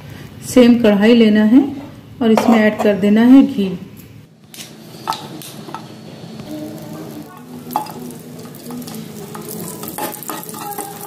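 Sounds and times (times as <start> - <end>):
ghee sizzling in a pan: 4.7 - 11.0
metal spatula scraping a pan: 7.7 - 11.0.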